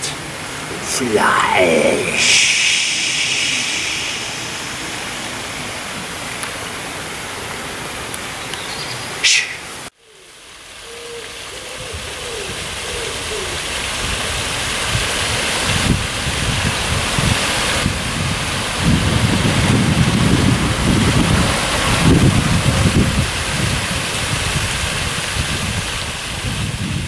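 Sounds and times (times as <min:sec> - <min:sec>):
fountain water running: 0:00.0 - 0:09.2, 0:10.1 - 0:27.0
rain: 0:00.0 - 0:27.0
short high hiss: 0:01.0 - 0:06.1, 0:09.2 - 0:09.8.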